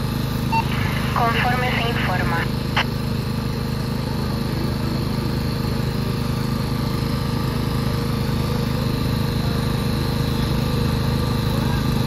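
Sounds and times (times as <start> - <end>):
small petrol engine running: 2.5 - 12.0.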